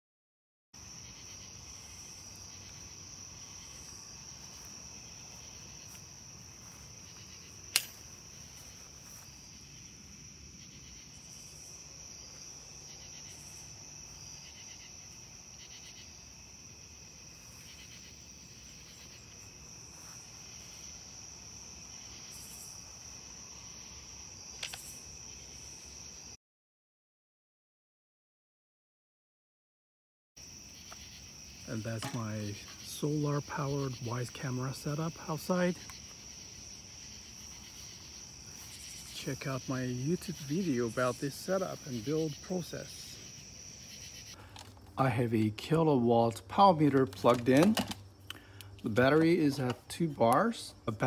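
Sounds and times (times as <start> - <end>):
crickets chirping: 0.8 - 26.4, 30.4 - 51.0
sharp click: 7.7 - 8.0.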